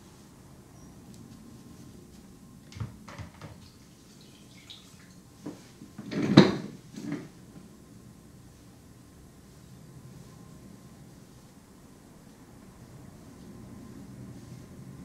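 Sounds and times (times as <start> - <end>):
objects knocking and clattering: 6.0 - 7.3.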